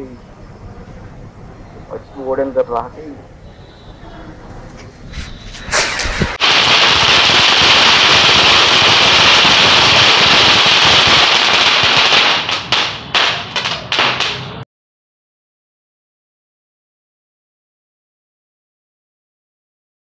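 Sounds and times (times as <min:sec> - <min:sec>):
firecrackers crackling: 0:00.0 - 0:14.6
firecracker bangs: 0:04.8 - 0:14.6.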